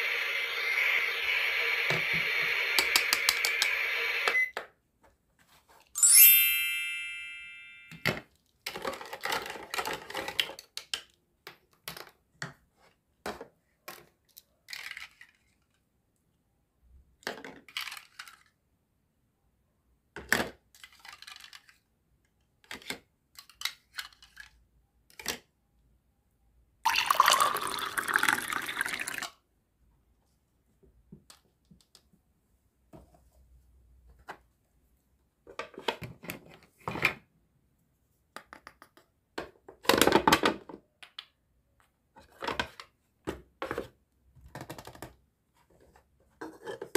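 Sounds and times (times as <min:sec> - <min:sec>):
plastic toys clattering: 0:08.0 - 0:12.2, 0:13.3 - 0:15.8, 0:17.2 - 0:18.6, 0:20.2 - 0:21.9, 0:22.6 - 0:25.4
water pouring: 0:26.9 - 0:29.4.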